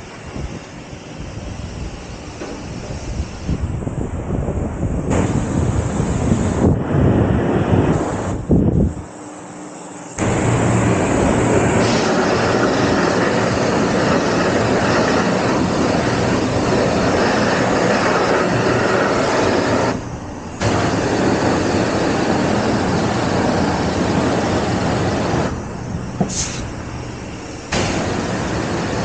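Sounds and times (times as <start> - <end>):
pressure washer spraying water: 5.1 - 6.7, 10.2 - 29.0
low pump hum: 10.2 - 29.0.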